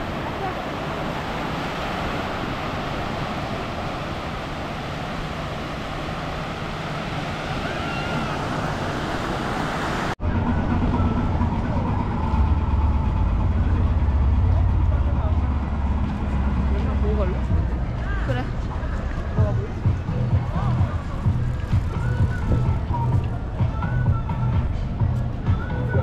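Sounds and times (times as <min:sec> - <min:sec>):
waves breaking on sand: 0:00.0 - 0:10.2
low traffic rumble: 0:00.0 - 0:26.0.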